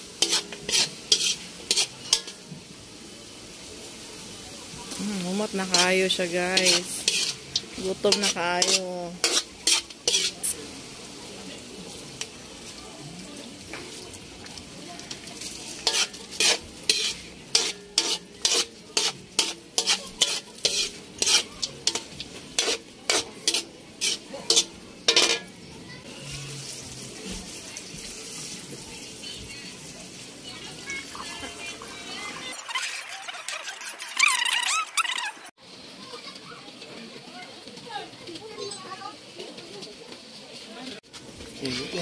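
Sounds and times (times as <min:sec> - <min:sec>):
metal spatula scraping a wok: 0:00.0 - 0:02.6, 0:04.9 - 0:10.9, 0:15.0 - 0:28.6, 0:32.4 - 0:35.5, 0:41.6 - 0:42.0
food sizzling: 0:00.0 - 0:42.0.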